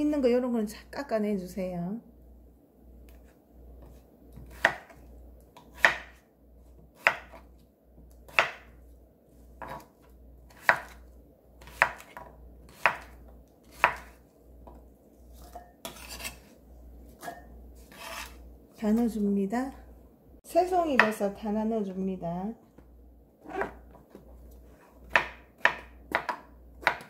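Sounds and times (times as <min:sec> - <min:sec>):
knife chopping on wooden board: 0:03.8 - 0:05.0, 0:05.6 - 0:06.2, 0:07.0 - 0:07.6, 0:08.3 - 0:08.8, 0:09.6 - 0:11.0, 0:11.6 - 0:14.8, 0:23.5 - 0:24.2, 0:25.0 - 0:27.0.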